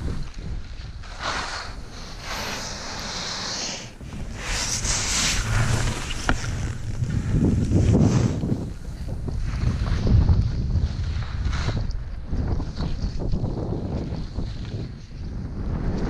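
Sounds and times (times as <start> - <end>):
wind rumble on microphone: 0.0 - 16.0
skis hissing through snow: 1.0 - 10.1.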